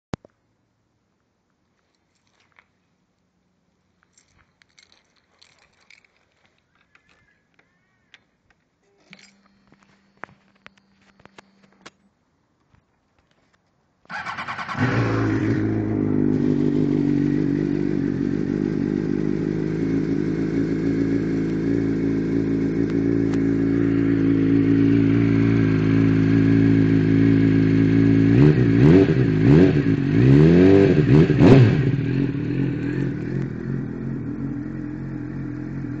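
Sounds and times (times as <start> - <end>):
motorcycle engine idling and revving: 14.1 - 36.0.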